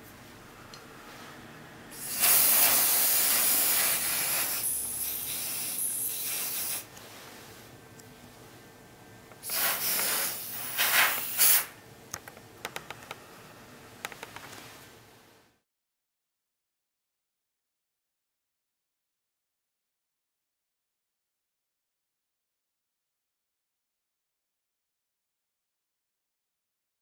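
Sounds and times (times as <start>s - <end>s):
aerosol spray hissing: 1.9s - 6.9s, 9.4s - 11.8s.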